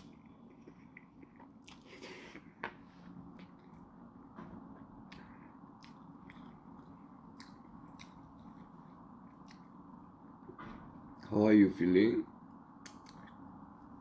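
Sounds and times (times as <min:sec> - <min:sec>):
person chewing noodles: 0:00.0 - 0:02.6, 0:05.1 - 0:09.8
low steady hum: 0:00.0 - 0:14.0.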